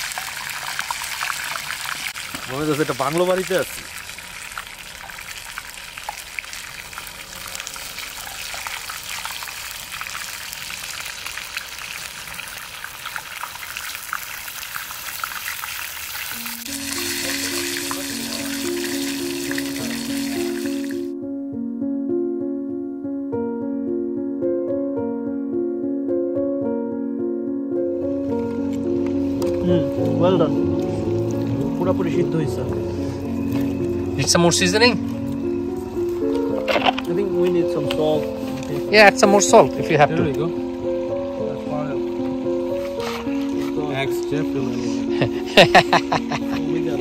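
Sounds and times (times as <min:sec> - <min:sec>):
chicken frying in hot oil: 0:00.0 - 0:21.0
background music: 0:16.4 - 0:47.0.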